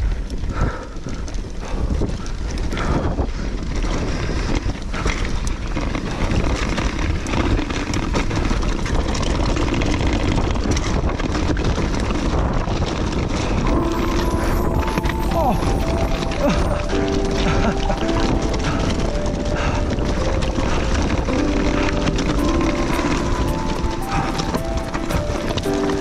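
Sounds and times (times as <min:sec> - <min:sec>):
bike rattling: 0:00.0 - 0:26.0
wind rumble on microphone: 0:00.0 - 0:26.0
tyres crunching over stones: 0:12.8 - 0:26.0.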